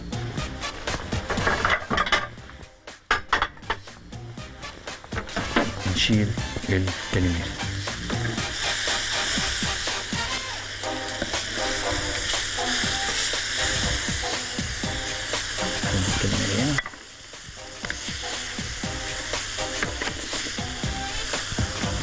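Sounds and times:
squid sizzling on a grill: 0.1s - 2.6s, 4.0s - 22.0s
spatula scraping grill: 0.4s - 2.4s, 4.6s - 22.0s.

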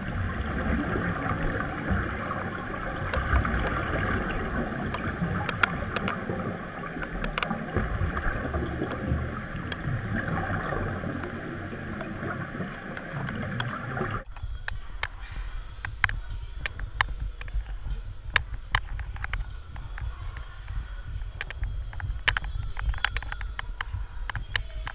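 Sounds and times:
underwater regulator bubbles: 0.0s - 14.3s.

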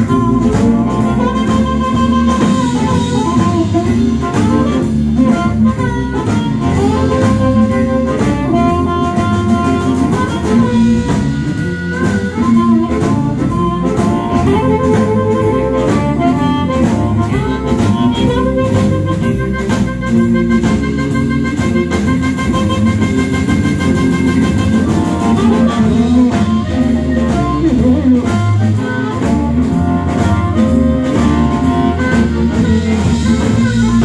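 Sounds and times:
blues harmonica: 0.0s - 34.0s
drum kit beat: 0.0s - 34.0s
electric bass: 0.0s - 34.0s
electric guitar: 0.0s - 34.0s.

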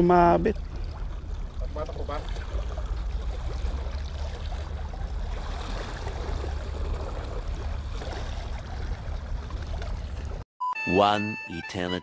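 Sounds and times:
small waves lapping on rocks: 0.2s - 10.4s.

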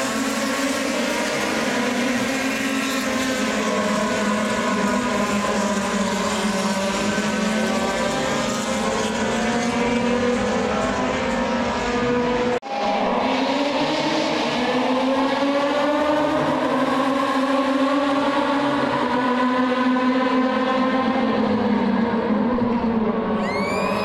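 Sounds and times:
racing car engines accelerating: 0.0s - 24.0s.

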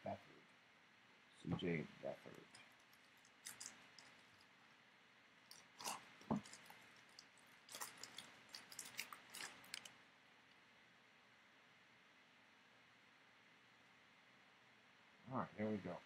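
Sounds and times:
wrapper crackling and rustling: 2.2s - 4.8s, 5.4s - 10.0s.

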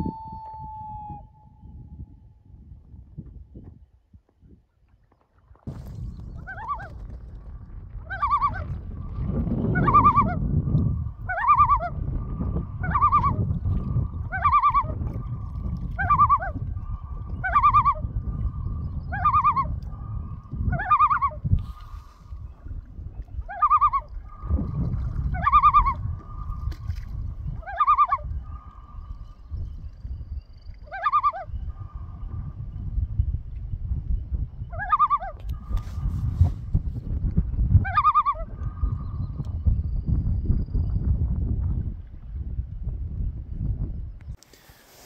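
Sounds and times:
loon calling: 0.0s - 1.7s, 8.1s - 8.7s, 9.7s - 10.4s, 11.2s - 12.1s, 12.7s - 13.4s, 14.2s - 15.0s, 16.0s - 22.2s, 23.5s - 24.5s, 25.3s - 26.7s, 27.5s - 29.2s, 30.9s - 32.0s, 34.7s - 35.8s, 37.8s - 39.0s
low rumble: 5.7s - 21.6s.

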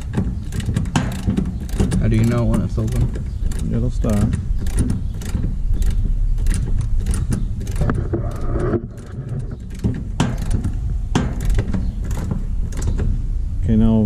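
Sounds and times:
hex key clicking on metal valve: 0.0s - 8.4s.

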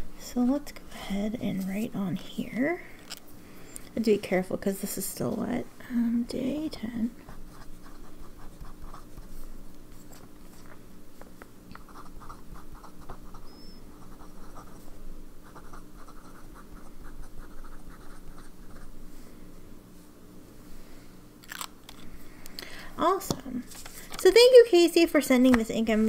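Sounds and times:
faint steady hum: 0.0s - 26.0s
fountain pen scratching on paper: 7.3s - 9.3s, 11.8s - 14.8s, 15.4s - 18.9s.

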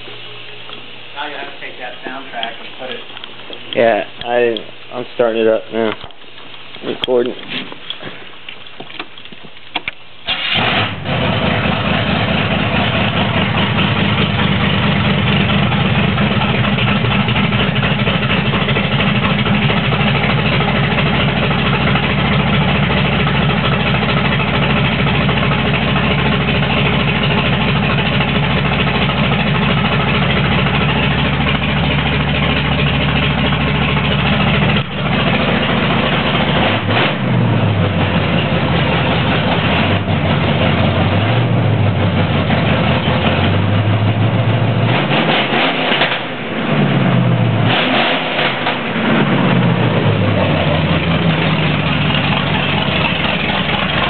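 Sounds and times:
engine cranking and starting: 10.2s - 14.4s, 47.7s - 54.0s
engine idling loudly: 10.3s - 46.3s, 47.0s - 54.0s.

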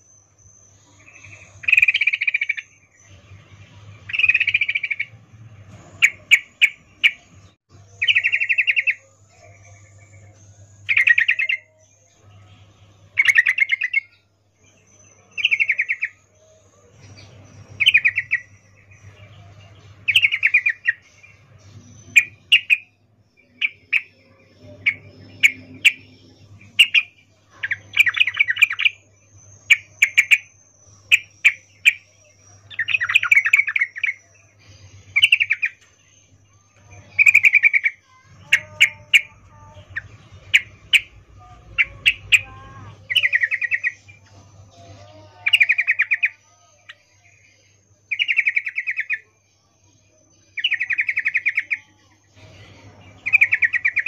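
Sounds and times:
bulbul chattering calls: 26.7s - 29.0s, 35.1s - 35.8s, 37.1s - 44.1s, 53.2s - 54.0s.

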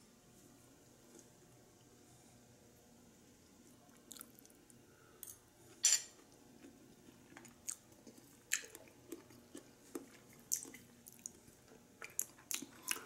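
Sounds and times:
person chewing: 3.9s - 4.7s, 6.2s - 13.0s.

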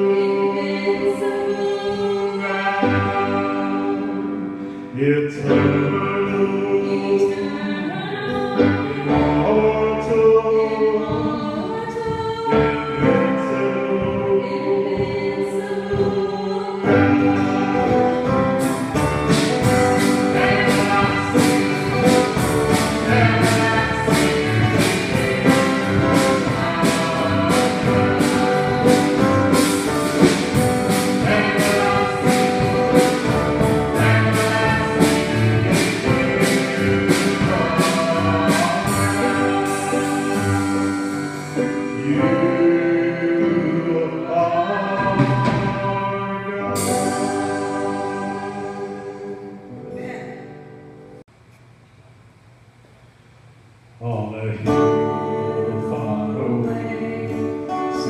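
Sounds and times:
voices singing: 0.0s - 50.2s
acoustic guitar: 0.0s - 51.2s, 54.0s - 58.0s
keyboard: 0.0s - 51.3s
drums and cymbals: 11.0s - 42.5s, 46.7s - 49.2s.

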